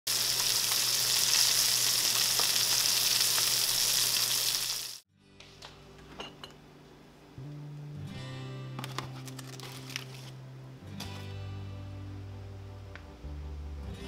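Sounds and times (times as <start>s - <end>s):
fish frying in oil: 0.1s - 5.0s.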